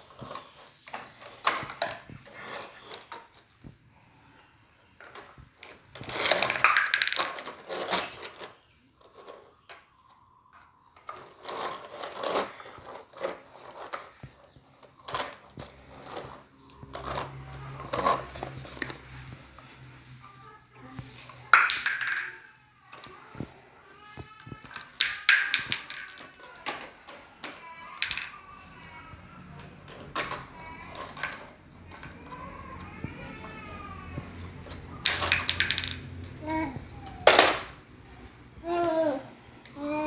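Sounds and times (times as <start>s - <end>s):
plastic toy knocks and rattles: 6.0s - 8.5s, 21.4s - 22.5s, 24.2s - 28.4s, 35.0s - 36.3s
plastic toy truck scraping on tile: 11.0s - 20.4s.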